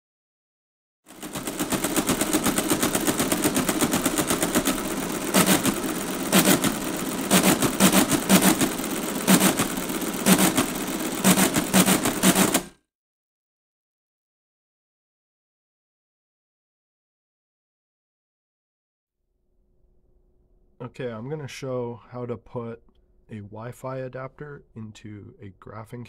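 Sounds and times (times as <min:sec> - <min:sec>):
heavy calculator clunks: 0:01.1 - 0:12.8
mechanical calculator clattering: 0:01.1 - 0:12.8.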